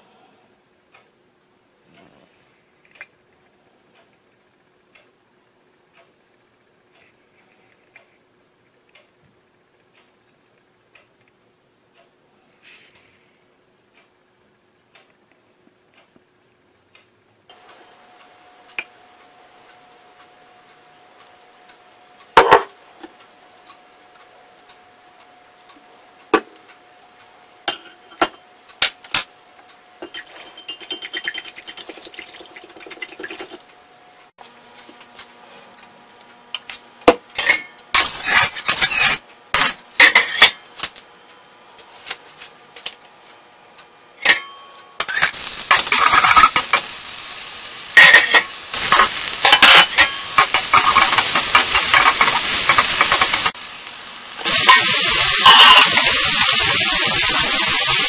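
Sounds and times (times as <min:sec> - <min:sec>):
spoon stirring in glass cup: 0:30.1 - 0:32.2
spatula scraping wok: 0:38.0 - 0:40.5, 0:45.0 - 0:47.2, 0:47.9 - 0:53.6, 0:54.4 - 0:58.0
utensils knocking on wok: 0:44.2 - 0:46.9, 0:48.0 - 0:53.6, 0:54.4 - 0:58.0
food sizzling in hot oil: 0:45.0 - 0:58.0.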